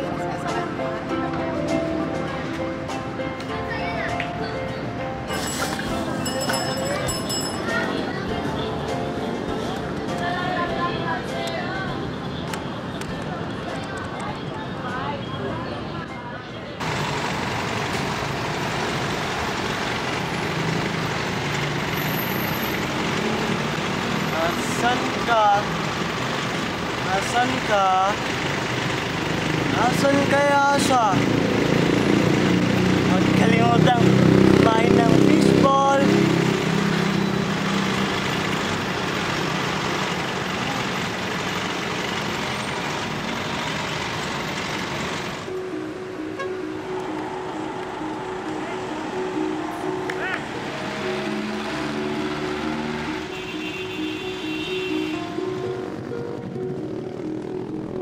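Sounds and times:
vehicle engines passing and idling: 0.0s - 58.0s
low drone: 45.5s - 53.3s.

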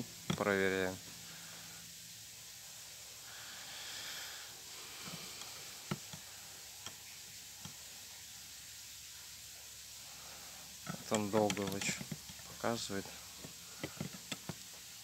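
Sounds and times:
faint hiss: 0.0s - 15.0s
light clicks and taps: 0.3s - 0.6s, 10.9s - 14.7s.

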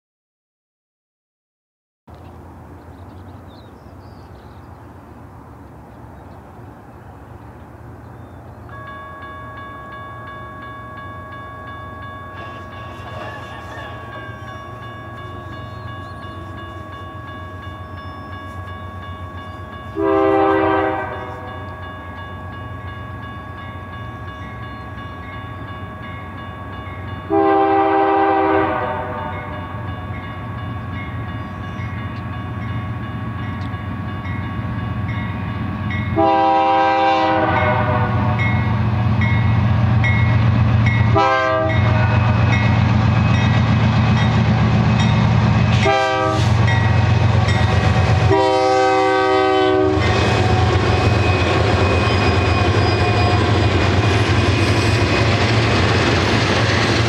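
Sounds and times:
locomotive engine rumble: 2.1s - 57.0s
crossing bell ringing: 8.7s - 57.0s
locomotive air horn blasts: 19.9s - 21.8s, 27.3s - 29.9s, 36.1s - 38.7s, 41.1s - 42.5s, 45.8s - 46.7s, 48.2s - 53.5s.

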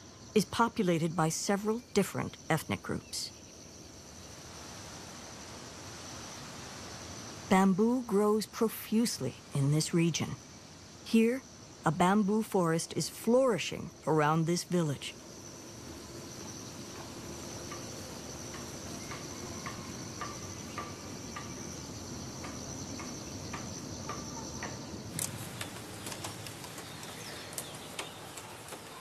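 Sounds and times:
insects trilling: 0.0s - 29.0s
faint chirps: 13.7s - 29.0s.

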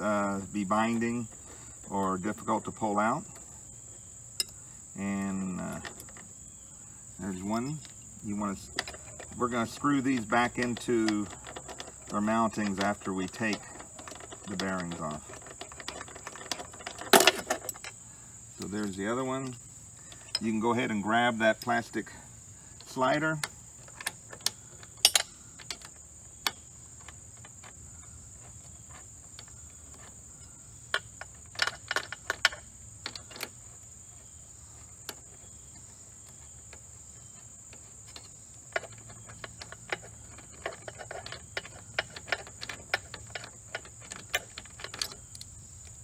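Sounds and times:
metallic clicks of hex wrench: 22.8s - 27.8s.

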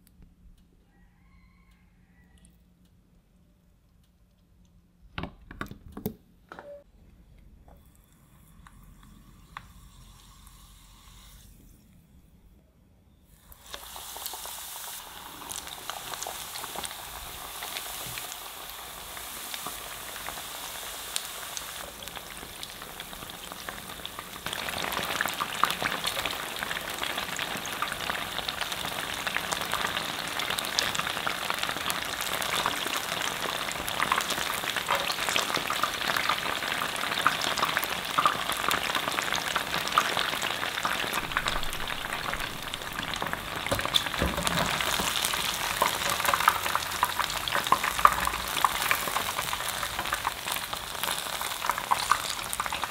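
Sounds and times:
chicken wings deep-frying in oil: 13.4s - 52.9s.

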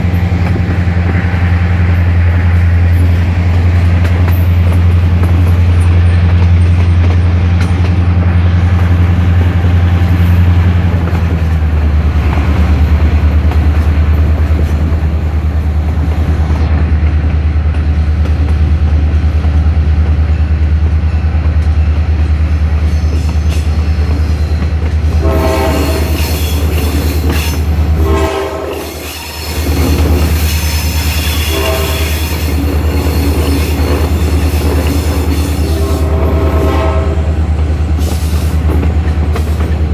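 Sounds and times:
locomotive diesel engines droning: 0.0s - 39.9s
steel wheels squealing on rail: 22.5s - 37.2s, 37.9s - 39.7s.

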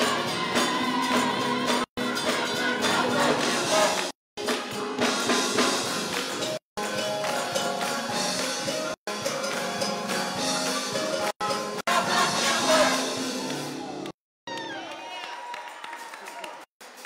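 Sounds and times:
church band and choir: 0.0s - 6.3s, 7.8s - 13.9s.

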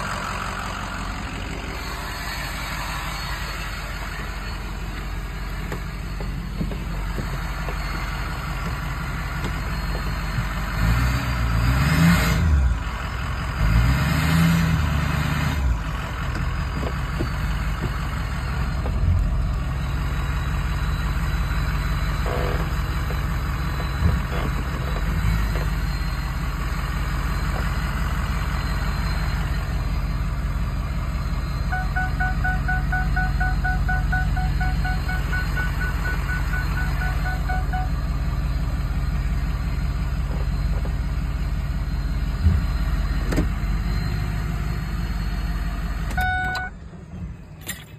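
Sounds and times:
truck engine idling: 0.0s - 14.0s, 14.7s - 47.9s
dashboard warning chime: 31.1s - 38.2s, 45.0s - 46.9s.

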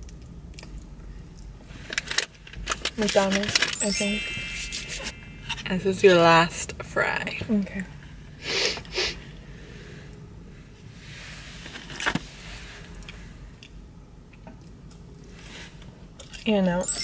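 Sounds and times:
person chewing fries: 0.0s - 1.9s, 12.8s - 16.4s.

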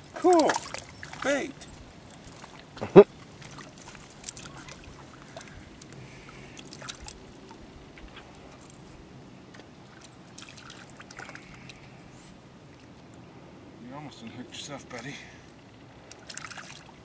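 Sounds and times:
shallow water sloshing and splashing: 0.0s - 11.9s, 15.5s - 17.0s.

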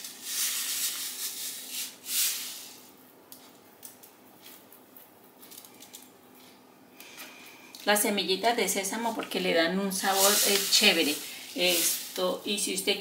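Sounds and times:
plastic packet crinkling: 10.1s - 12.2s.

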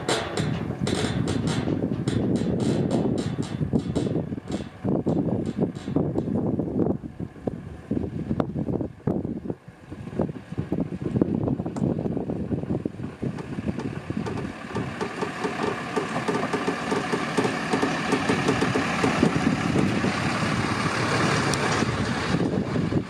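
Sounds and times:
regular knocks: 0.0s - 6.3s, 13.8s - 19.4s
bridge deck clattering and creaking: 0.0s - 6.4s, 13.3s - 19.9s
truck engine running: 0.0s - 23.0s.

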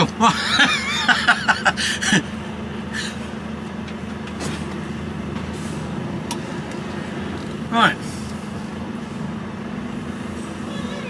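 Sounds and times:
diesel lorry engine idling: 0.0s - 11.0s
man talking: 7.7s - 8.1s.

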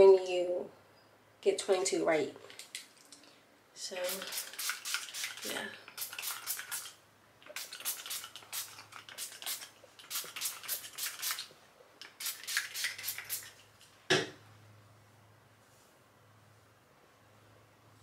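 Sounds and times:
spray bottle hissing sprays: 4.0s - 13.6s.

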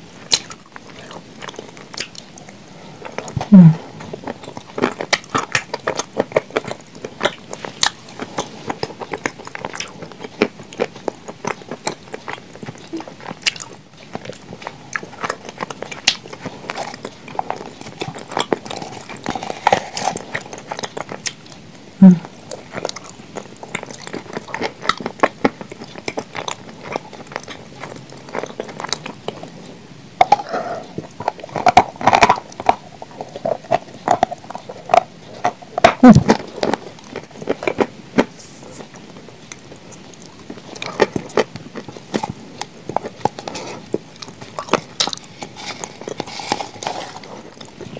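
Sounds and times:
chewing and crunching: 0.2s - 47.9s
wet mouth sounds: 3.1s - 6.1s, 22.0s - 22.6s, 30.2s - 36.5s.

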